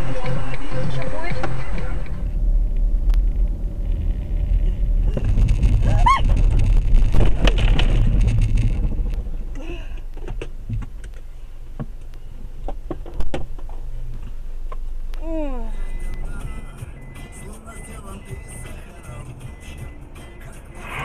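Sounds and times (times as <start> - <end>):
high arching tone: 0.0 - 12.9
car rumbling on road: 0.0 - 21.0
sharp clicks and knocks: 5.1 - 15.2.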